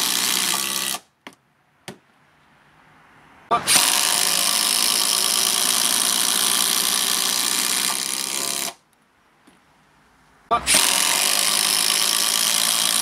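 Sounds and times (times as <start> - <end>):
impact drivers hammering screws: 10.5 - 13.0.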